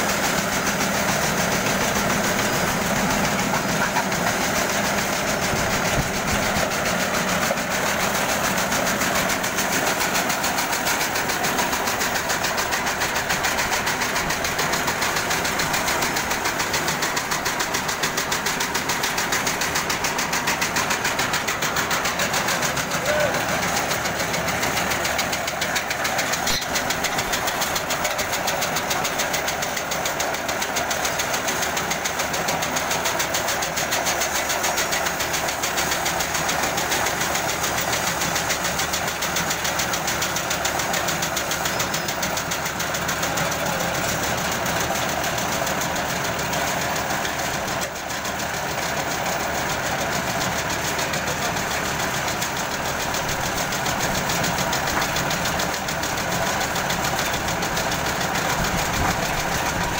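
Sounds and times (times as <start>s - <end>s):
paving machine engine pulsing: 0.0s - 59.9s.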